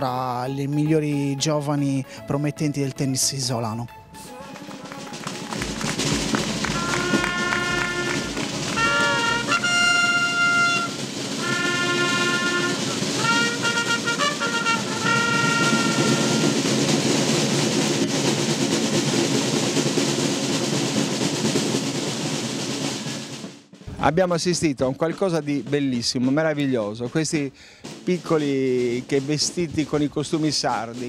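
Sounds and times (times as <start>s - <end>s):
trumpets playing held notes: 3.9s - 17.3s
continuous drumming: 4.5s - 31.0s.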